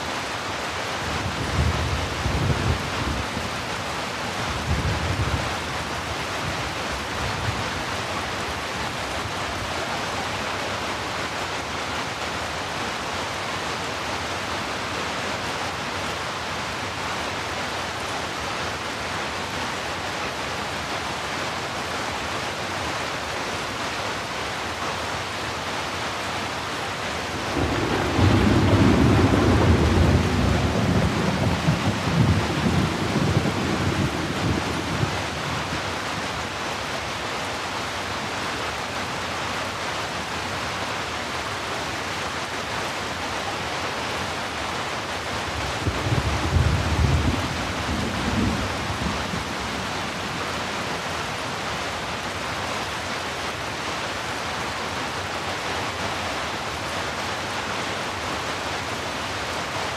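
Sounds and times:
heavy rain hiss: 0:00.0 - 0:59.9
thunder rolling: 0:27.4 - 0:35.2, 0:45.7 - 0:50.6.

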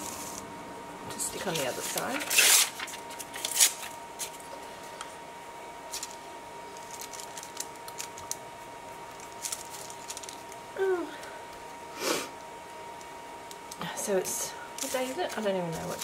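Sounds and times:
paper rustling: 0:01.4 - 0:04.4, 0:05.9 - 0:08.4, 0:09.1 - 0:10.6, 0:14.8 - 0:16.0.

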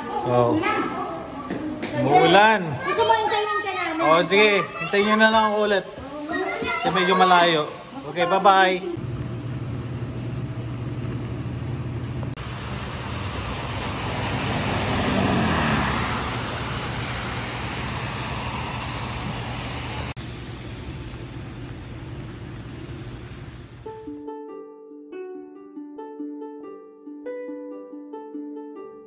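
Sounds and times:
low hum of traffic: 0:00.0 - 0:24.3
tyre hiss on wet pavement: 0:02.2 - 0:09.0, 0:12.4 - 0:23.9
vehicle passing close: 0:12.4 - 0:21.4.

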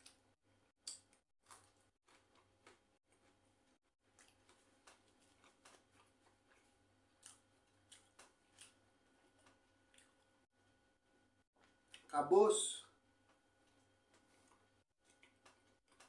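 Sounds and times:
bread tearing and chewing: 0:00.8 - 0:10.4, 0:13.3 - 0:16.0.

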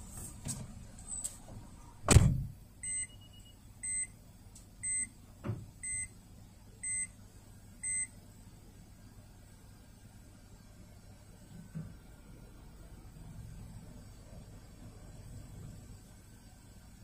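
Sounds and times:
heavy thump: 0:02.1 - 0:02.6
short electronic beeps: 0:02.8 - 0:04.1.

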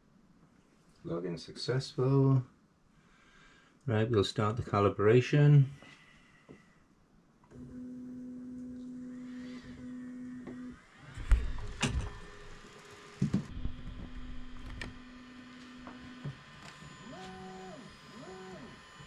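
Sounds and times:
stepper motors whining: 0:09.3 - 0:19.0.

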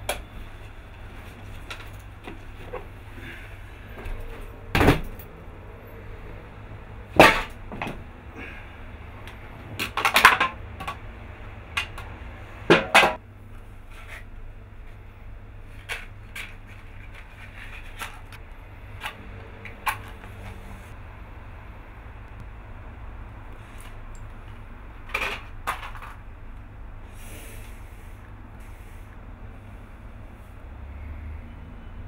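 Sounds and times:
knocks and rustles of handling objects: 0:00.0 - 0:05.3, 0:07.1 - 0:08.1, 0:11.7 - 0:13.2, 0:13.8 - 0:20.8, 0:23.6 - 0:26.3.

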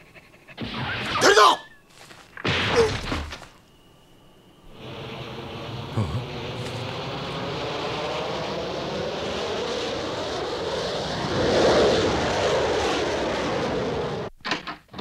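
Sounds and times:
jet plane passing overhead: 0:03.8 - 0:14.3.

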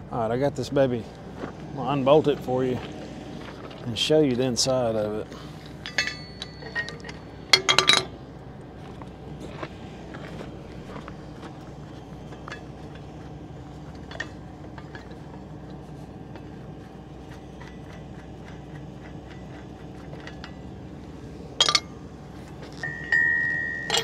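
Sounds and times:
steady low hum: 0:00.0 - 0:24.0
metal bolts and tools clinking: 0:05.8 - 0:08.1, 0:14.0 - 0:15.2, 0:19.3 - 0:20.6, 0:21.6 - 0:22.0, 0:22.7 - 0:24.0
sharp metal clanks: 0:05.8 - 0:08.1, 0:21.6 - 0:22.0, 0:22.8 - 0:24.0.

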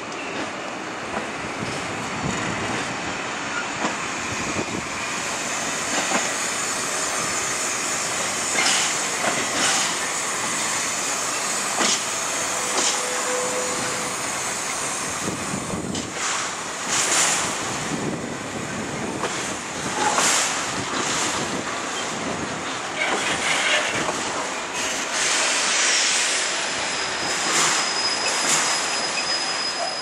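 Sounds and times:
freight wagons rolling on rails: 0:08.5 - 0:10.0, 0:18.8 - 0:24.4
thin wheel squeal: 0:12.5 - 0:14.2, 0:26.8 - 0:30.0.

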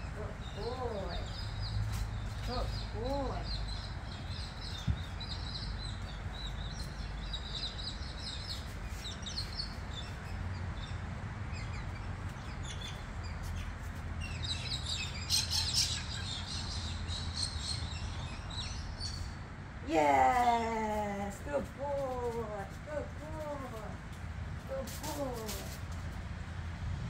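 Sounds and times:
steady low rumble: 0:00.0 - 0:15.3
small birds chirping: 0:00.0 - 0:19.4.

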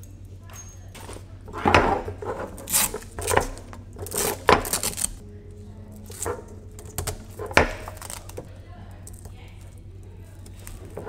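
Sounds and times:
hard plastic parts clicking: 0:00.9 - 0:05.2, 0:06.0 - 0:09.8.

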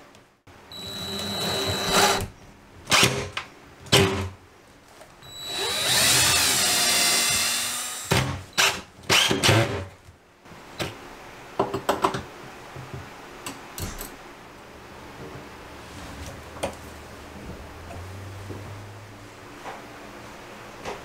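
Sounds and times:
cordless drill driving screw: 0:00.8 - 0:02.3, 0:05.3 - 0:09.4.

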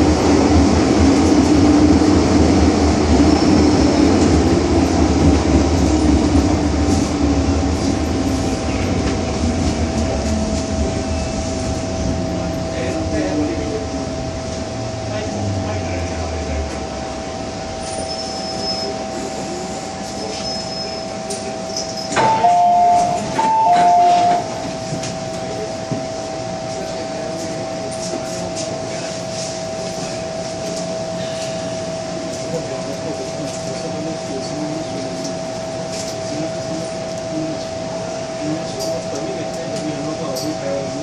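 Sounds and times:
train electrical hum: 0:00.0 - 0:41.0
two-tone door chime: 0:22.2 - 0:24.5.

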